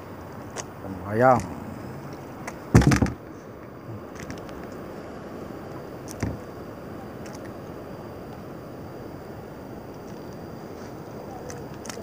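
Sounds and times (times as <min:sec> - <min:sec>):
sea noise: 0:00.0 - 0:12.0
loud thump: 0:02.7 - 0:03.2.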